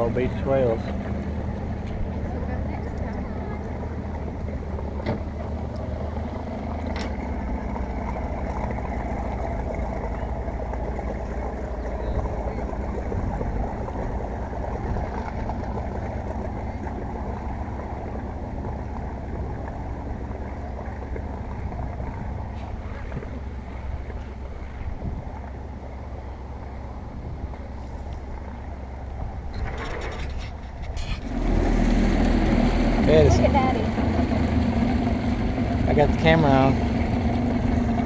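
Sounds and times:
outboard motor running: 0.0 - 38.0.

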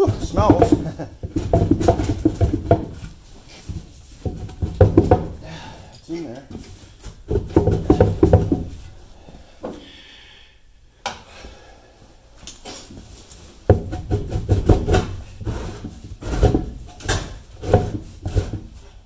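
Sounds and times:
metal tube clunking and scraping: 0.0 - 9.0, 13.0 - 19.0.

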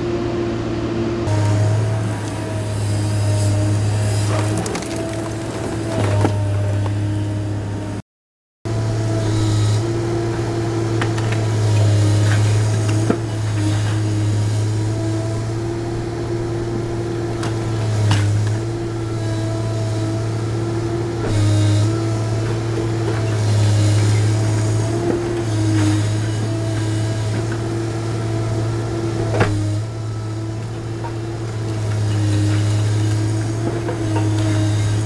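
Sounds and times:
excavator engine and hydraulics: 0.0 - 8.0, 8.7 - 35.0
brickwork breaking and falling: 4.2 - 7.0.

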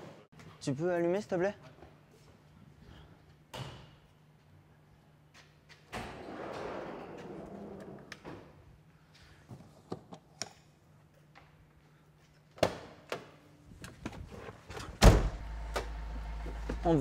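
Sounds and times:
van door slamming: 15.0 - 15.5.

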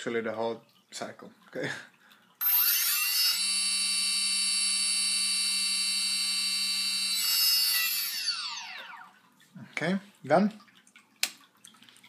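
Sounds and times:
quadcopter motor whine: 2.4 - 9.2.

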